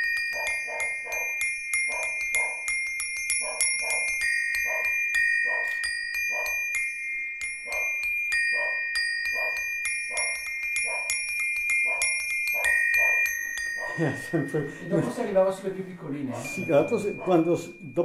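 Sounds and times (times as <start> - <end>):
metal bars struck ringing: 3.4 - 15.4, 16.4 - 18.0.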